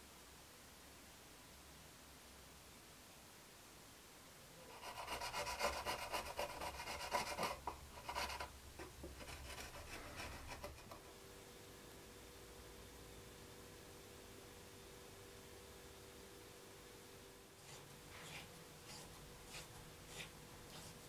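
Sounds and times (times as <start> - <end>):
hand file rasping: 4.7 - 11.0, 17.6 - 21.0.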